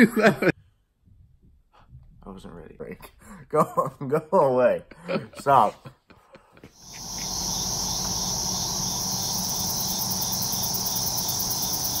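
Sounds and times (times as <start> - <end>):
night insects chirring: 6.8 - 12.0.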